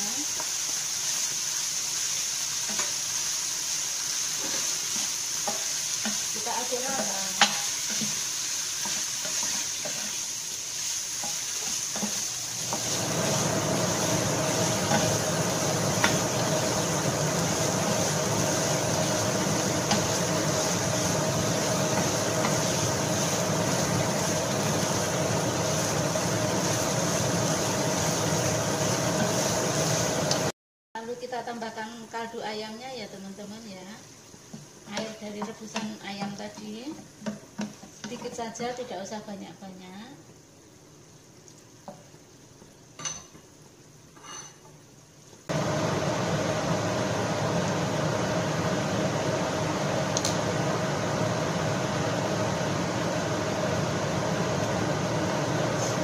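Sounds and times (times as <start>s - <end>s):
chicken sizzling in a pan: 0.0s - 30.5s, 31.1s - 40.0s, 45.4s - 56.0s
wooden spatula scraping a pan: 4.3s - 16.6s, 17.4s - 30.3s.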